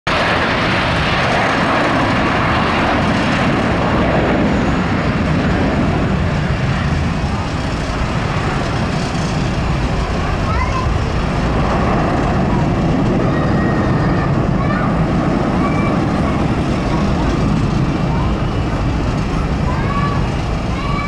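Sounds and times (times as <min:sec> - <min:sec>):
jet engines at takeoff: 0:00.1 - 0:21.0.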